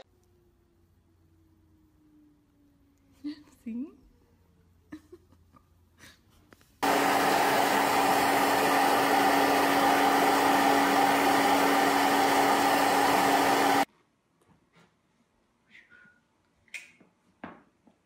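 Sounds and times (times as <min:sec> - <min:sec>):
hair dryer running: 0:06.8 - 0:13.9.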